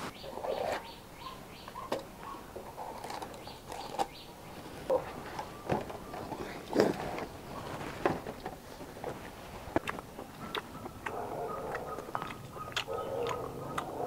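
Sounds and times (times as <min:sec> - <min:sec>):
rustling: 0:02.2 - 0:10.9.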